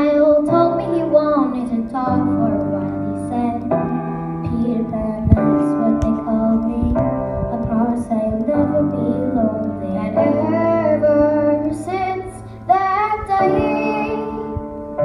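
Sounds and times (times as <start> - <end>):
girls singing a duet: 0.0 - 14.8.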